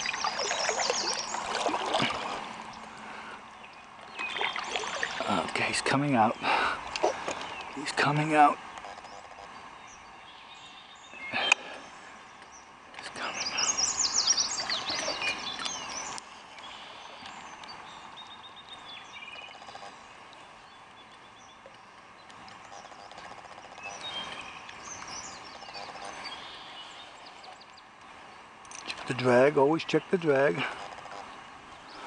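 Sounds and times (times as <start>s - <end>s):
fish splashing in water: 0.0s - 2.7s, 4.2s - 5.4s
songbirds calling: 0.0s - 32.0s.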